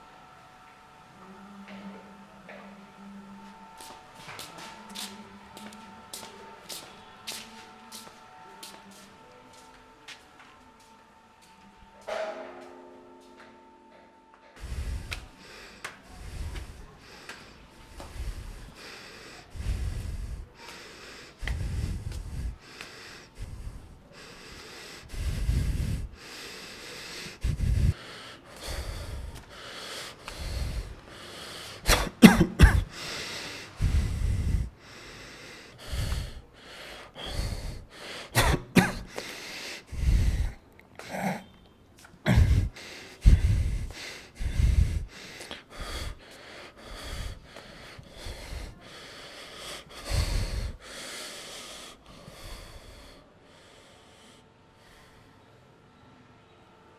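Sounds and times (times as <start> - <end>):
person breathing heavily: 14.6 - 55.6.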